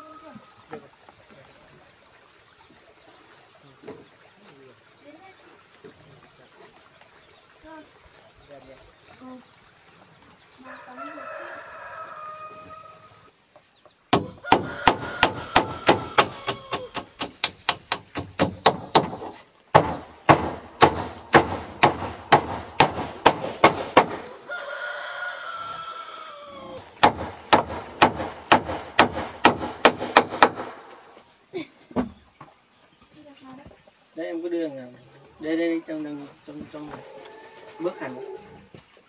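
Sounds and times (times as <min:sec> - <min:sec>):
rooster crowing: 0:10.6 - 0:13.3, 0:14.2 - 0:17.0, 0:24.3 - 0:26.8
hammer nailing metal roofing sheet: 0:14.9 - 0:19.2.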